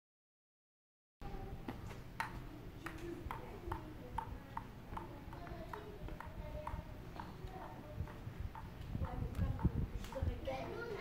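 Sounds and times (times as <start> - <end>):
table tennis ball bouncing on paddle: 2.2 - 10.8.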